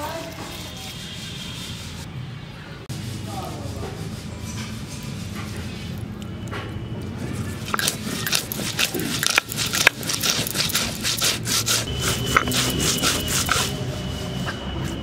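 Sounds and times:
stone grinding spices: 7.3s - 15.0s.

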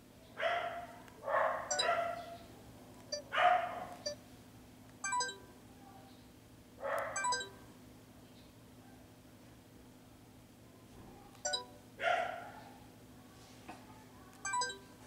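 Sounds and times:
dog barking: 0.4s - 2.4s, 3.3s - 4.1s, 6.8s - 7.3s, 12.0s - 12.8s
short electronic beeps: 5.0s - 5.5s, 7.2s - 7.6s, 11.4s - 11.8s, 14.4s - 14.9s.

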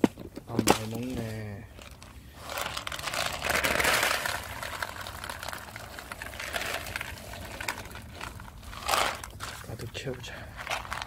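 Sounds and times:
kibble pouring into plastic tray: 2.4s - 9.9s, 10.6s - 11.0s.

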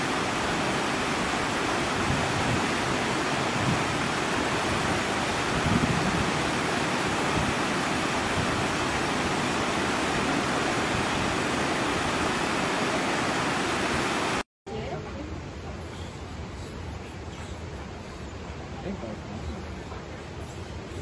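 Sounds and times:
stream rushing over rocks: 0.0s - 14.4s.

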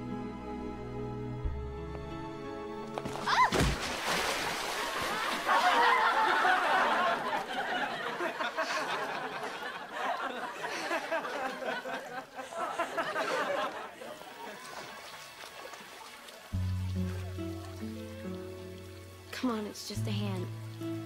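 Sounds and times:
crowd laughing and chattering: 4.9s - 15.4s.

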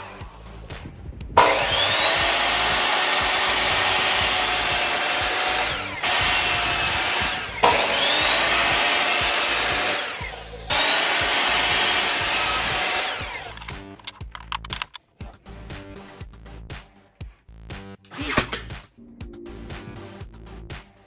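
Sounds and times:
miter saw motor whining: 1.4s - 14.0s.

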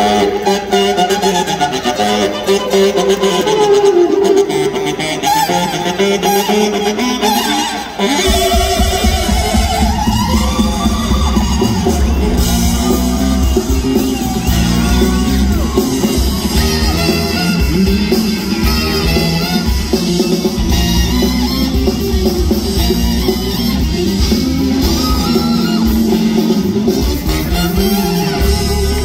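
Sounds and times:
funk rock band playing: 0.0s - 29.0s.

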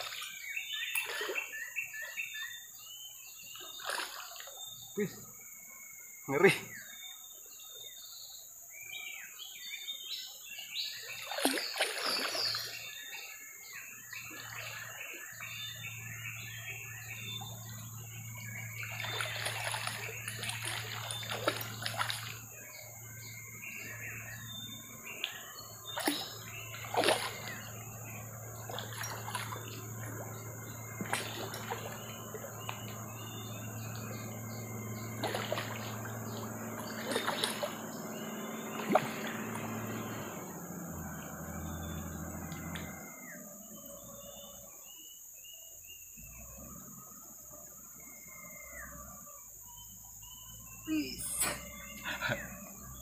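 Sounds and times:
fish splashing at water surface: 3.7s - 4.6s, 11.2s - 12.8s, 18.8s - 22.5s, 24.5s - 40.9s.

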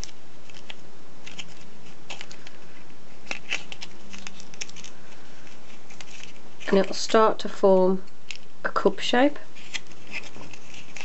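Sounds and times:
foil wrapper crinkling: 0.0s - 7.1s, 9.6s - 11.0s.

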